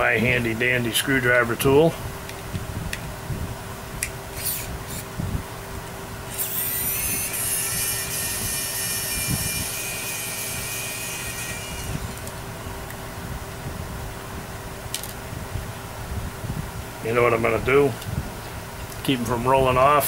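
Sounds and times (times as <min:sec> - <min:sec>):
electric screwdriver whine: 0:04.4 - 0:05.1, 0:06.3 - 0:12.4.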